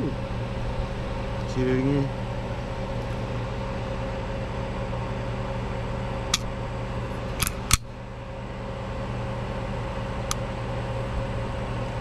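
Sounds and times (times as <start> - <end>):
pistol trigger clicks: 7.4 - 7.9.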